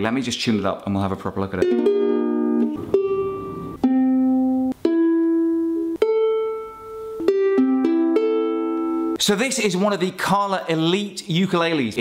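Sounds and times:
ukulele strummed: 1.5 - 9.2.

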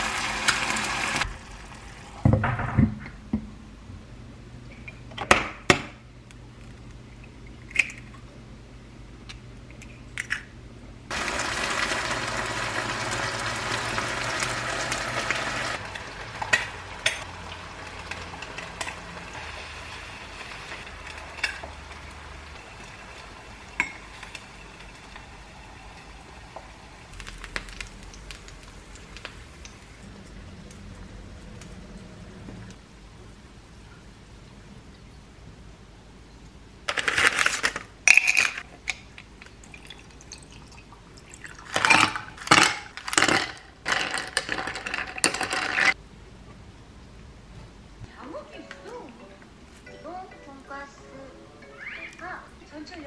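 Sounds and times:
egg sizzling in hot oil: 0.0 - 2.1, 11.1 - 29.8.

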